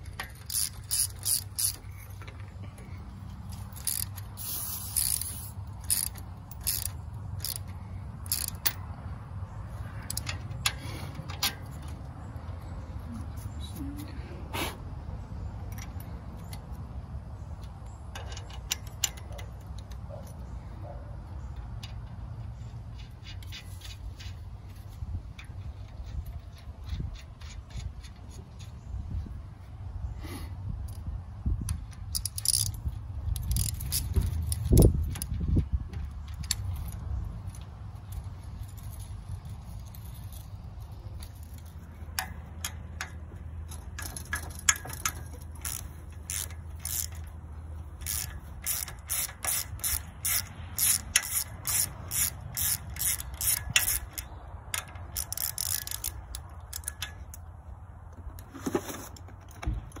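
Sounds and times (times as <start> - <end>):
ratchet wrench clicking: 0.0 - 2.4, 3.4 - 8.9, 9.8 - 12.1, 17.6 - 20.4, 21.4 - 28.8, 31.7 - 57.5.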